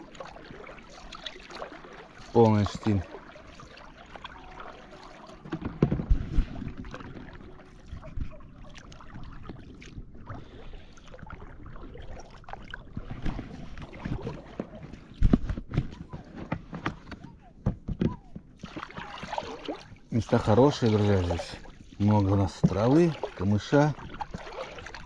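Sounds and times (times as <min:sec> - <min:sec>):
light water noise: 0:00.0 - 0:25.0
oars knocking: 0:04.2 - 0:07.2, 0:13.9 - 0:19.3, 0:20.2 - 0:25.0.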